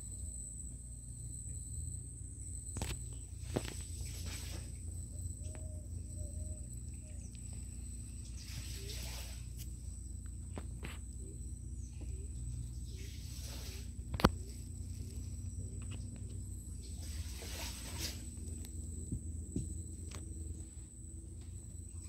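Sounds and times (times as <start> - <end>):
high-pitched insect drone: 0.0 - 22.0
oars swishing through water: 8.2 - 9.6, 16.8 - 18.4.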